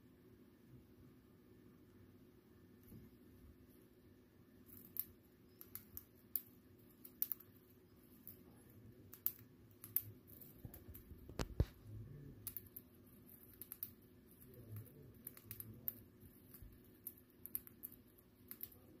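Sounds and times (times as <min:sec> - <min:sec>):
bird beak cracking seeds: 0:04.7 - 0:08.4, 0:09.1 - 0:11.8, 0:12.4 - 0:18.8.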